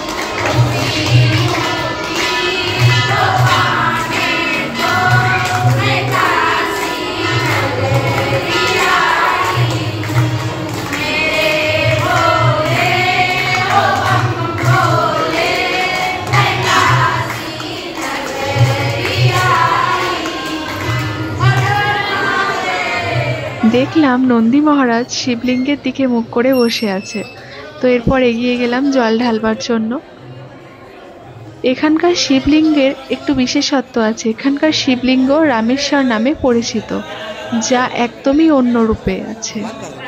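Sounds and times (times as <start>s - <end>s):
hands clapping in time: 0.0s - 22.3s
women singing devotional song: 0.0s - 30.0s, 31.7s - 39.6s.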